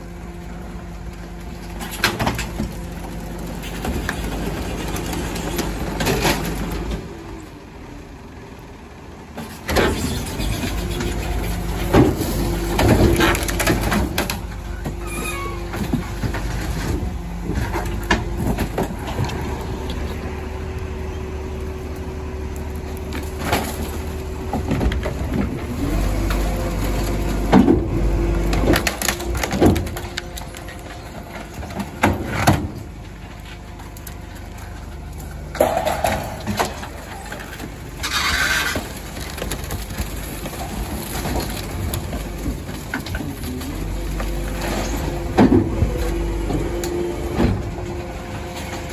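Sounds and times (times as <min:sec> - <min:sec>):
garbage truck running: 0:00.0 - 0:48.9
hydraulic packer humming: 0:00.0 - 0:48.9
junk thudding and clattering: 0:09.4 - 0:19.8, 0:23.1 - 0:48.9.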